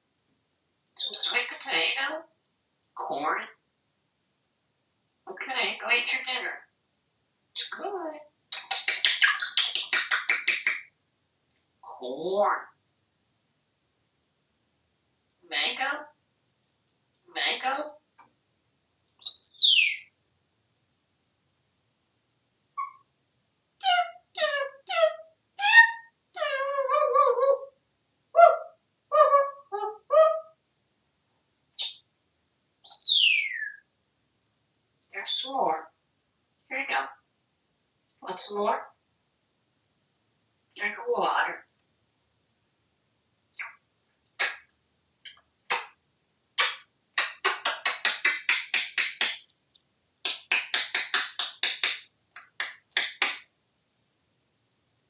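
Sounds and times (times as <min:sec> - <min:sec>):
parrot calls: 0:01.0 - 0:02.2, 0:07.6 - 0:10.9, 0:19.2 - 0:20.1, 0:22.8 - 0:23.1, 0:23.8 - 0:30.6, 0:32.8 - 0:33.9, 0:43.6 - 0:43.8, 0:44.4 - 0:46.0, 0:46.6 - 0:49.4, 0:50.2 - 0:53.5
parrot clicking and popping: 0:08.5 - 0:10.9, 0:46.6 - 0:53.5
long wavering parrot call: 0:32.9 - 0:33.8.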